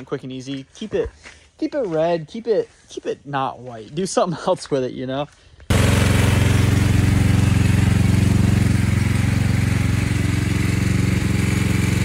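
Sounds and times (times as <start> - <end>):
motorbike engine idling: 5.7 - 12.0.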